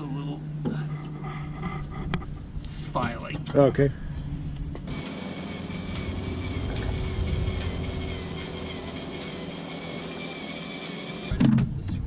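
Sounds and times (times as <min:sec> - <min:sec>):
cordless drill boring into metal: 0:04.9 - 0:11.3.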